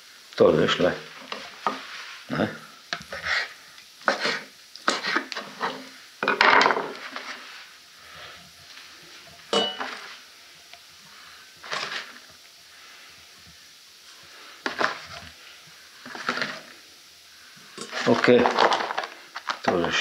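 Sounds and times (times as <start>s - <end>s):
ringing metal clink: 9.5s - 9.9s
scrapes and knocks in metal pot: 16.1s - 16.7s.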